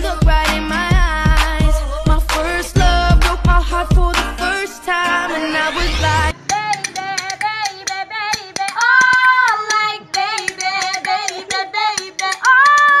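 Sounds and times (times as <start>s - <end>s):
high voice singing: 0.0s - 13.0s
hand claps: 0.4s - 1.7s, 2.3s - 2.6s, 7.2s - 13.0s.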